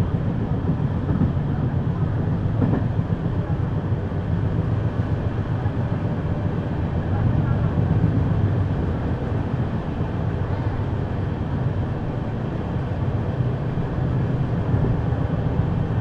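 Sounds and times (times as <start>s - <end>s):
train wheels on rails: 0.0s - 16.0s.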